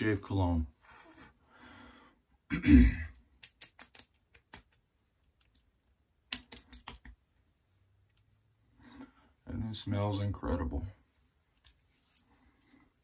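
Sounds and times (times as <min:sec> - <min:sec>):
hands patting face: 0:03.5 - 0:05.6.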